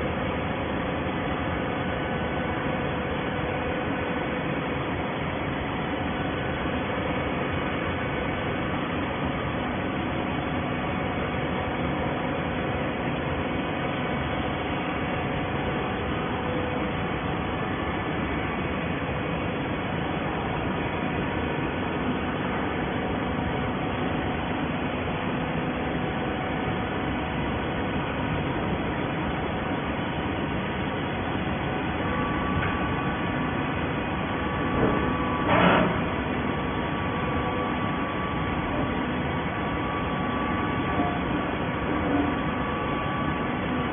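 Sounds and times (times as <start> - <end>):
faint machine hum and whine: 0.0 - 43.9
baler machine running: 10.8 - 43.9.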